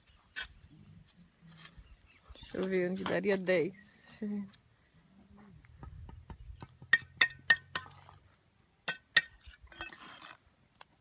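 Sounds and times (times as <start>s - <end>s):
trowel striking bricks: 6.1s - 8.2s, 8.8s - 10.4s.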